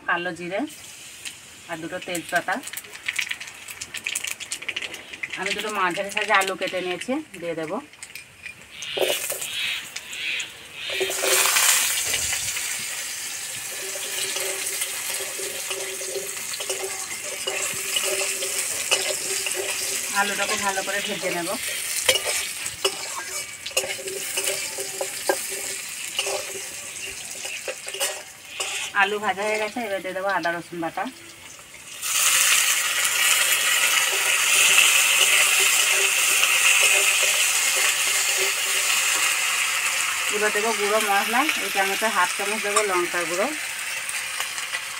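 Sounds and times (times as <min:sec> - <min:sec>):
potatoes sizzling in hot oil: 0:00.0 - 0:44.9
metal spatula scraping pan: 0:08.1 - 0:09.5, 0:10.8 - 0:12.4, 0:13.5 - 0:29.7, 0:33.2 - 0:39.4.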